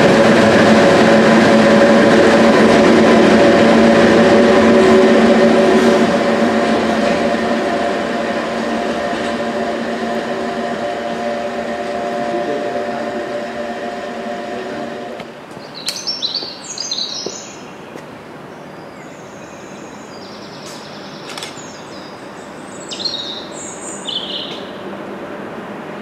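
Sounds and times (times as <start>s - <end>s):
train hum: 0.0s - 26.0s
songbird chirping: 15.5s - 24.8s.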